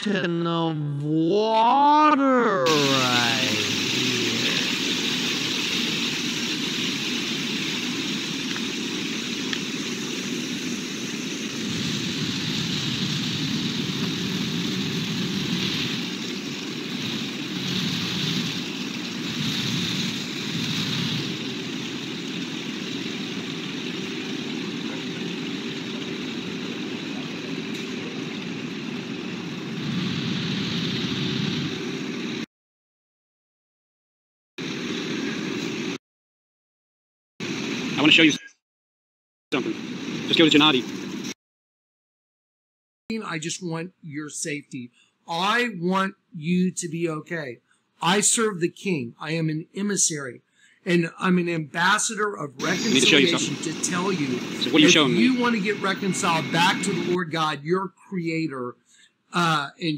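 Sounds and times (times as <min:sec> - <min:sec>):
fountain jets splashing on stone: 0:02.7 - 0:31.2, 0:52.6 - 0:57.2.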